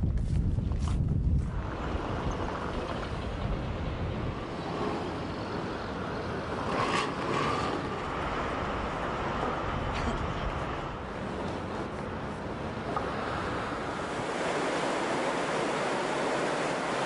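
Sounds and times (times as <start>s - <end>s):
street traffic rumble and hiss: 0.2s - 17.0s.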